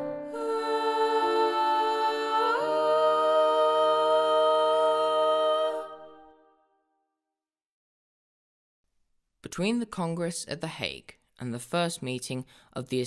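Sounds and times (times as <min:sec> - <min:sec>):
women singing in harmony: 0:00.2 - 0:06.4.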